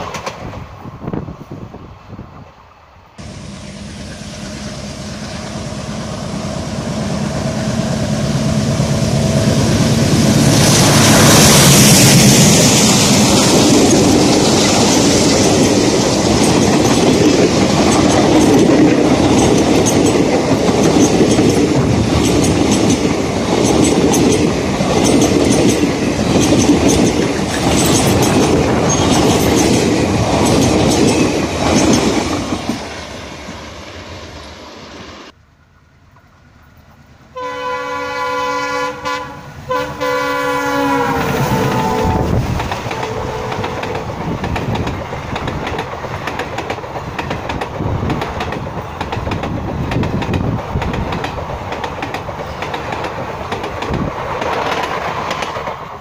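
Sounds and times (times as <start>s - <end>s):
train wheels clickety-clack: 0.0s - 0.7s, 7.2s - 33.6s, 41.1s - 56.0s
diesel locomotive engine: 0.0s - 56.0s.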